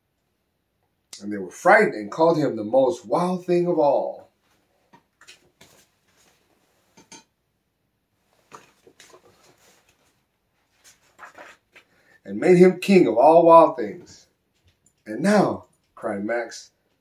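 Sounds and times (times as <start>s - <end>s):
paper rustling: 8.4s - 12.0s.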